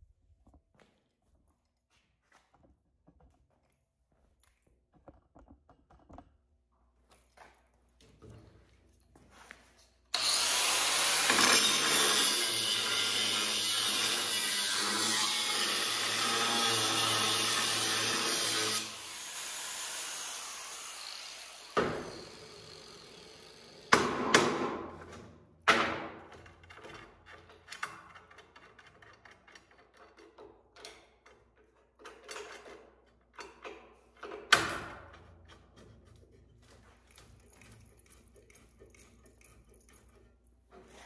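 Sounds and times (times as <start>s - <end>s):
angle grinder on steel: 10.2s - 23.9s.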